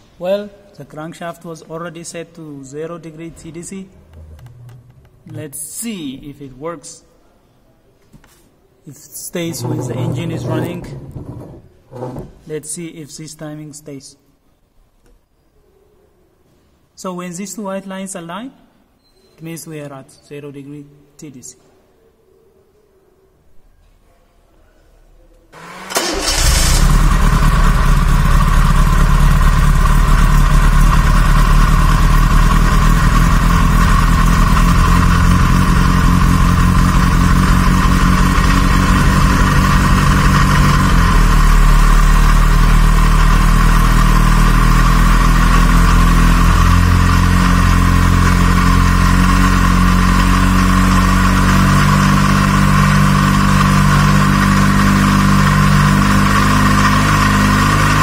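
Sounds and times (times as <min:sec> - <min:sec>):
gasoline engine idling: 0:25.6 - 0:56.5.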